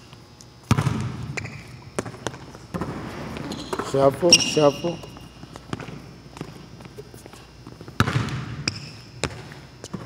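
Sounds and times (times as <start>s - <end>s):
basketball bouncing on hardwood: 0.7s - 3.8s, 8.0s - 9.5s
sneaker squeak: 0.8s - 6.0s, 8.0s - 10.0s.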